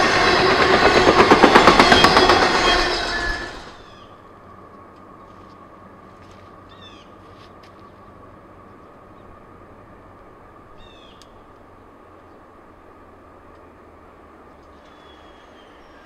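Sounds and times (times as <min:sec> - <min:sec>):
bird calling descending notes: 0:00.0 - 0:04.4, 0:10.7 - 0:11.5
distant locomotive rumble: 0:00.0 - 0:16.0.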